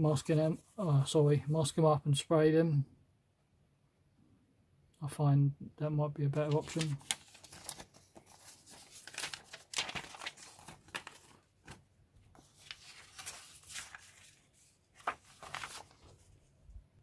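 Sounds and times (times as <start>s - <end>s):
paper rustling and crinkling: 6.4s - 16.5s.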